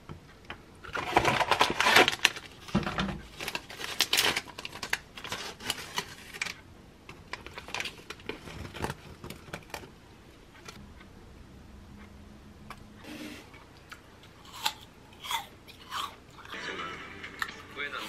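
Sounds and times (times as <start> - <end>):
snack pouch crinkling: 3.3 - 6.6.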